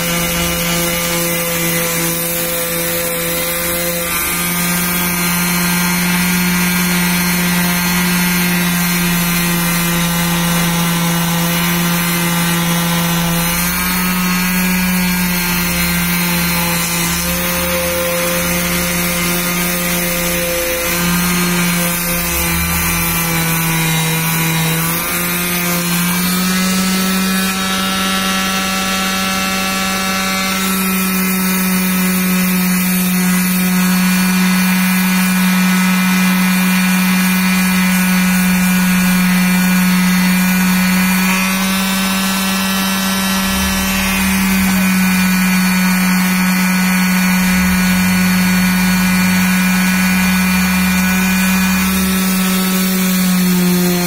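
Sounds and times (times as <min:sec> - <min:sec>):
electric palm sander on wood: 0:00.0 - 0:54.0.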